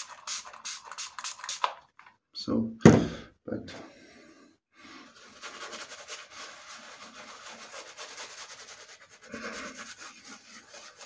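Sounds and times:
shaving brush rubbing on stubble: 5.1 - 11.0.

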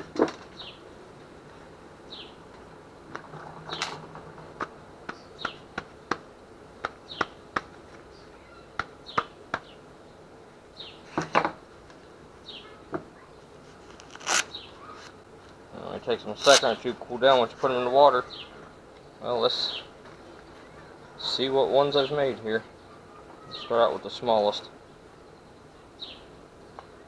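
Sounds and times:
bird chirping: 0.6 - 0.9, 2.1 - 2.4, 5.1 - 5.7, 7.0 - 7.4, 8.0 - 11.1, 12.4 - 13.5, 14.4 - 15.1, 18.2 - 23.9, 24.8 - 27.0.

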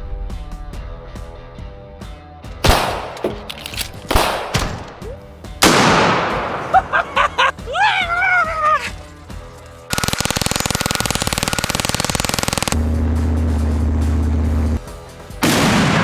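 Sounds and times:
background music: 0.0 - 16.0
loud gunshots: 4.1 - 4.7, 5.6 - 6.7, 9.9 - 12.8, 15.4 - 16.0.

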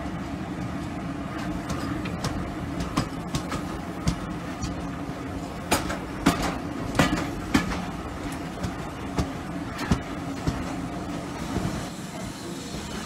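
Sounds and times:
passing train: 0.0 - 13.0
steady train rumble: 0.0 - 13.0.

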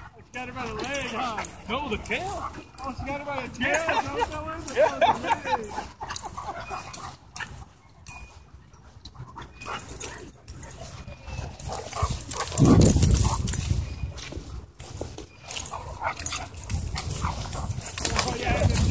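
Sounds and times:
dogs scuffling: 0.0 - 18.9
dogs growling: 0.7 - 2.9, 5.4 - 7.7, 9.2 - 13.6.

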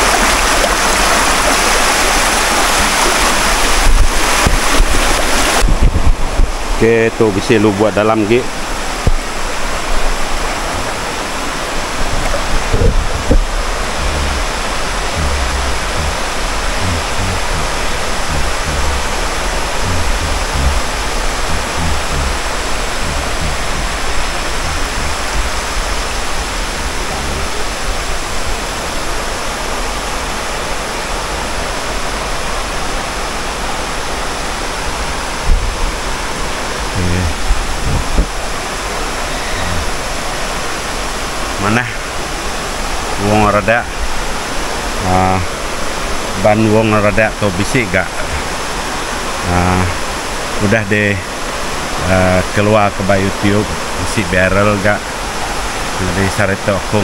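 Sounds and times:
waterfall rushing: 0.0 - 57.0
low thumps on microphone: 2.7 - 6.8, 8.9 - 28.0, 35.4 - 36.0, 37.0 - 38.6.

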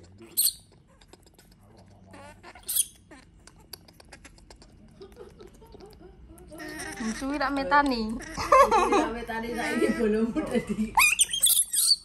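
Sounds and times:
baby monkey squeaking: 0.2 - 4.7, 5.6 - 8.5, 11.0 - 12.0.

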